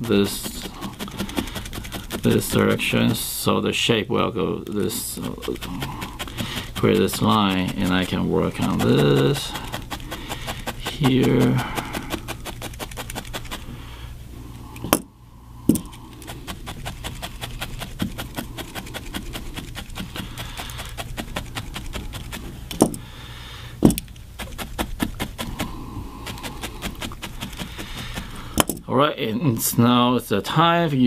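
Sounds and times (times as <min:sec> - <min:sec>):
felting needle ticking: 0:00.0 - 0:03.2, 0:04.6 - 0:13.7, 0:15.7 - 0:23.0, 0:23.8 - 0:28.9.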